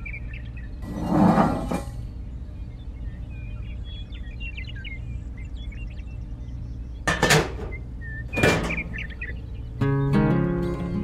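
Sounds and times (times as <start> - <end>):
small birds chirping: 0.0 - 11.0
steady low hum: 0.0 - 11.0
panel scraping and clattering: 1.0 - 1.9, 7.1 - 9.2.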